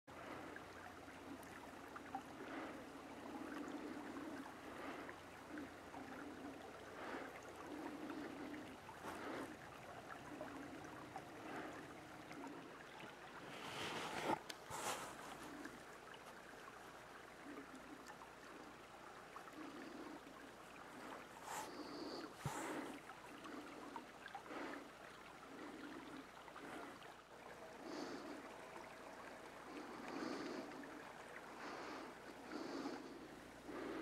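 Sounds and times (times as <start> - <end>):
pond water lapping: 0.1 - 34.0.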